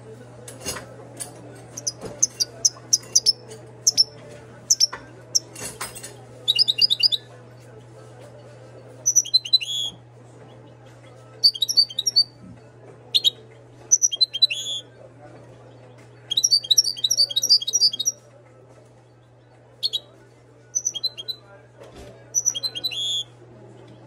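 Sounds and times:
goldfinch twittering song: 0:01.8 - 0:04.1, 0:04.7 - 0:05.5, 0:06.5 - 0:07.2, 0:09.0 - 0:09.9, 0:11.4 - 0:12.3, 0:13.1 - 0:14.8, 0:16.3 - 0:18.2, 0:19.8 - 0:20.0, 0:20.8 - 0:21.4, 0:22.4 - 0:23.2.

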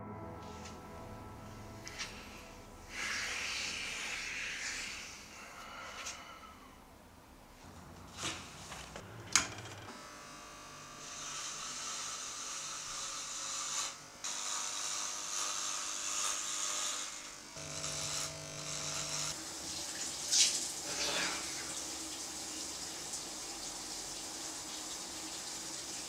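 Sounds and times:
electric hair clippers buzzing: 0:02.9 - 0:05.0, 0:08.0 - 0:19.6.

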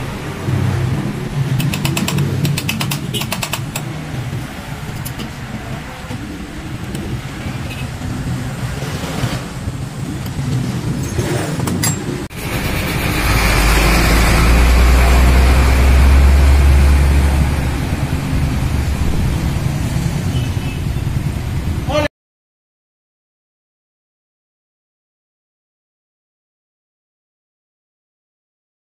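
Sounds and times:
vehicle engine rumbling: 0:00.0 - 0:22.0.

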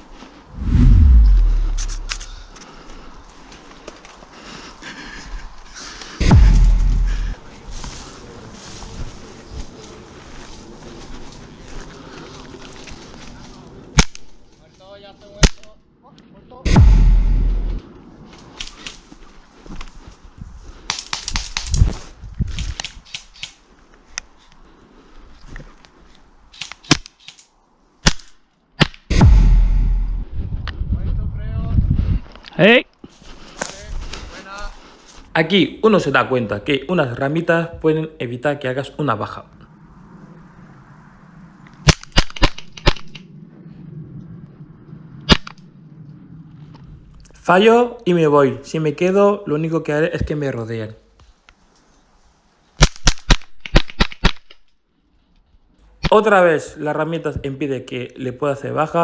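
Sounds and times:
loud low rumble: 0:00.5 - 0:02.5, 0:06.2 - 0:07.4, 0:16.7 - 0:17.8, 0:29.1 - 0:30.6
rustling in dry brush: 0:01.5 - 0:14.8, 0:18.1 - 0:26.6.

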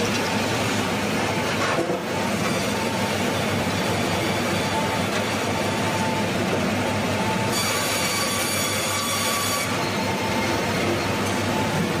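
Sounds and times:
sawmill machinery noise: 0:00.0 - 0:12.0
high thin saw blade whine: 0:07.5 - 0:10.6.

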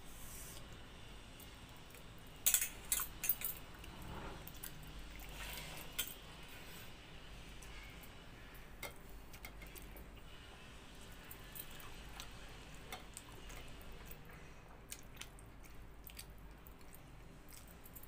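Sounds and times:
bangles clinking on steel plates: 0:02.4 - 0:03.6.

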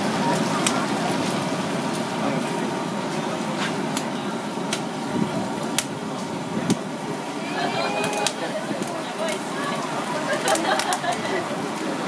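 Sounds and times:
sharp pops and clicks: 0:05.7 - 0:06.0.

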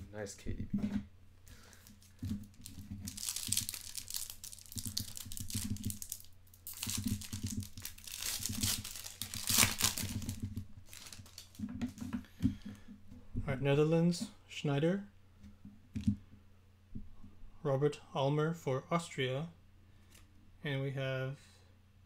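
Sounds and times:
foil wrapper tearing and crinkling: 0:02.0 - 0:11.6.

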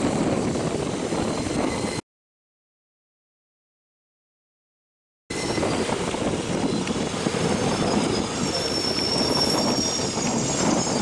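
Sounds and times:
train wheels rumbling on rail: 0:00.0 - 0:02.0, 0:05.3 - 0:11.0
high-pitched wheel squeal: 0:00.2 - 0:02.0, 0:05.3 - 0:11.0.

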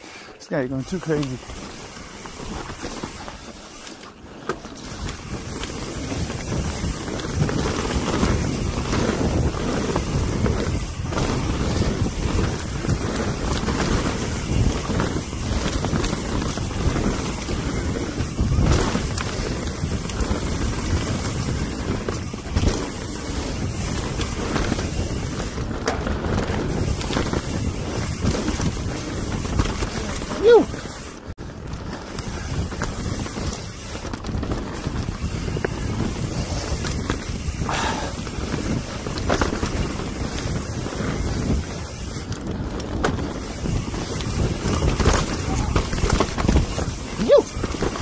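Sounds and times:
tyres rumbling on dirt: 0:00.4 - 0:48.0
wind buffeting microphone: 0:00.7 - 0:48.0
bike knocks and rattles: 0:00.9 - 0:48.0.

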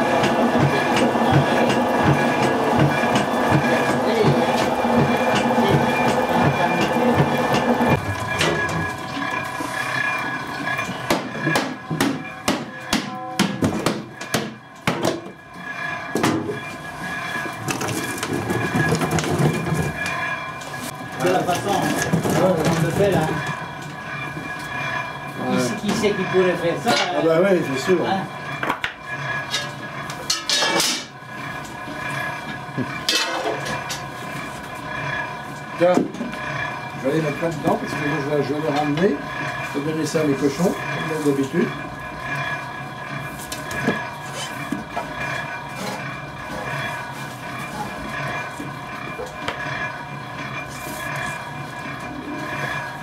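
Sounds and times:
steady hum: 0:00.0 - 0:53.0
oil press parts knocking and clanking: 0:00.2 - 0:09.4, 0:10.4 - 0:15.4, 0:16.0 - 0:16.7, 0:17.4 - 0:20.1, 0:21.2 - 0:23.6, 0:31.8 - 0:34.7.

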